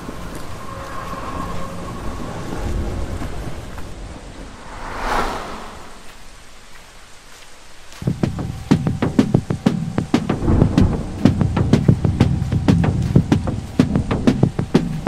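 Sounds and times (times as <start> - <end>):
steady rain: 0.0 - 15.0
whoosh: 4.4 - 6.4
low thunder rumble: 10.4 - 14.3.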